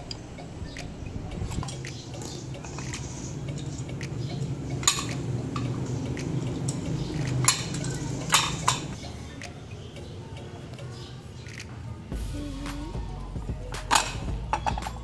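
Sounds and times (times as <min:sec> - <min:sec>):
small ticks: 0:00.8 - 0:08.8.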